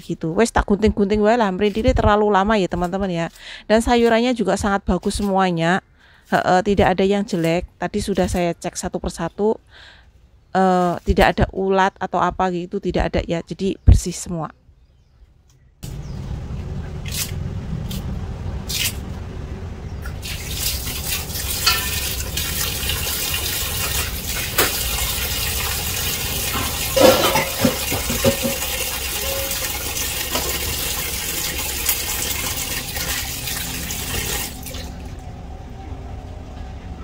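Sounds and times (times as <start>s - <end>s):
scissors snipping greens: 6.8s - 8.6s
tap water splashing on leaves: 20.0s - 25.7s
knocks: 26.6s - 28.7s.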